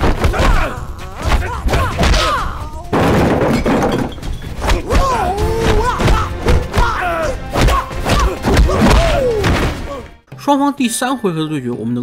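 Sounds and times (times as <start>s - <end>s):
background music: 0.0s - 12.0s
fighters crying out: 0.2s - 2.9s, 4.7s - 10.1s.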